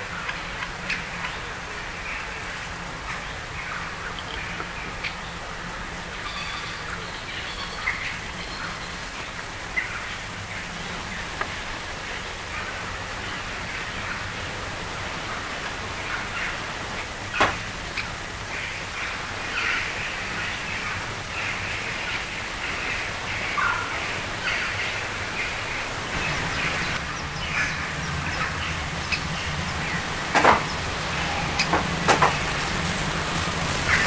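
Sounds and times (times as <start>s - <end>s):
birds calling harshly: 0.1s - 34.0s
low hum: 26.0s - 34.0s
sharp knocks: 31.6s - 32.5s.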